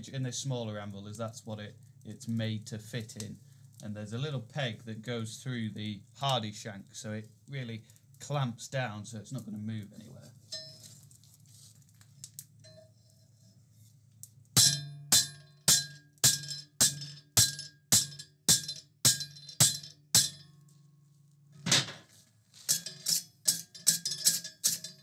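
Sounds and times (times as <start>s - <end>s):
hammer ringing on steel: 14.6s - 20.6s.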